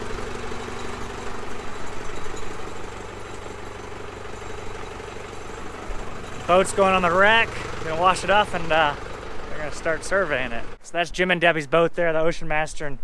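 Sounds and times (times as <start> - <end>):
forklift engine idling: 0.0 - 10.8.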